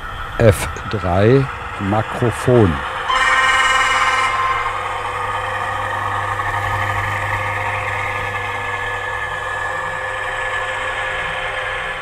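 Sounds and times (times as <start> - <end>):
model locomotive diesel engine idling: 0.0 - 12.0.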